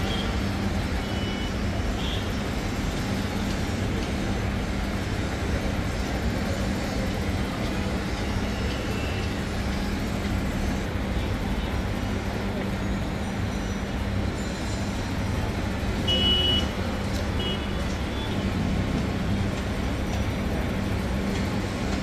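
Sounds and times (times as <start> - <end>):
city road traffic: 0.0 - 22.0.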